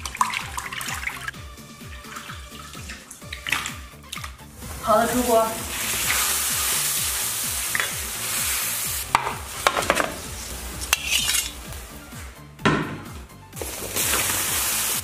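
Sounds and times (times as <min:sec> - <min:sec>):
meat sizzling in a wok: 0:05.5 - 0:11.8, 0:13.6 - 0:15.0
metal skimmer scraping a wok: 0:09.5 - 0:11.7.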